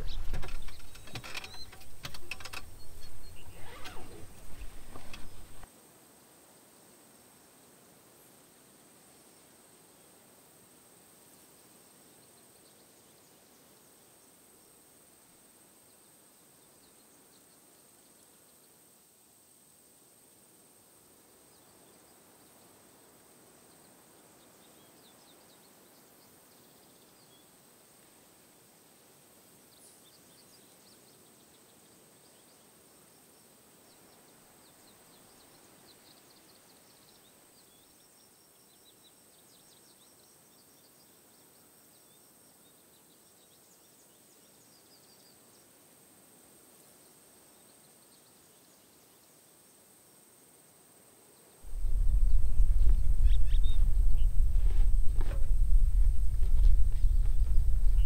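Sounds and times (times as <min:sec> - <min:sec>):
faint high chirps: 0:51.7 - 0:56.3.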